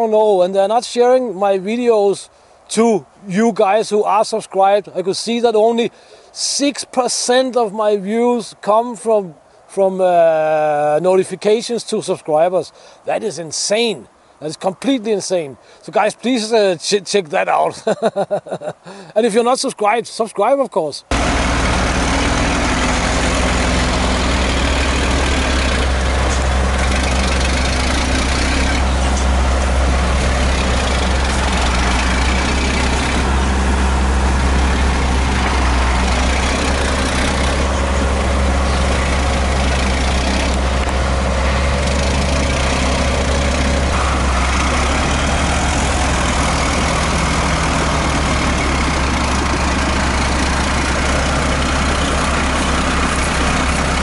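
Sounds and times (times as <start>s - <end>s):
diesel engine under load: 21.0s - 54.0s.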